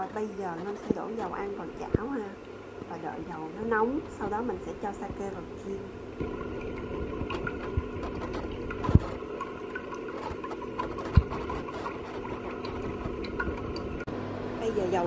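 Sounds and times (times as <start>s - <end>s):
cooling fan humming: 0.0s - 15.0s.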